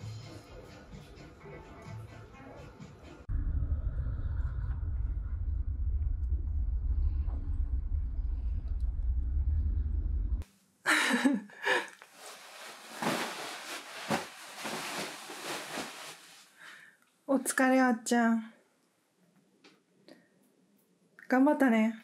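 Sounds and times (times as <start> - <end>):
soft rustles: 11.9 - 16.6.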